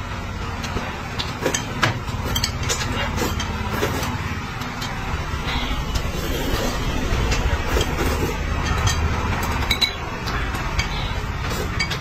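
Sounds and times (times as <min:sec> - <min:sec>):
steady low rumble: 0:02.0 - 0:11.5
noodles being slurped: 0:05.4 - 0:12.0.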